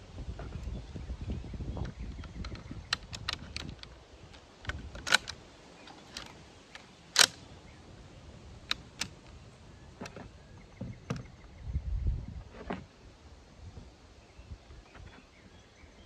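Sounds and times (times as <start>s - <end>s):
rifle action metallic clicks: 2.2s - 7.4s, 8.6s - 9.3s.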